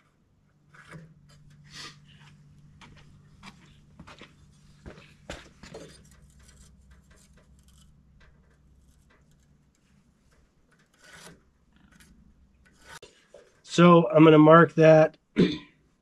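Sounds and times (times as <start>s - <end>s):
square scraping on wooden board: 10.7s - 13.4s.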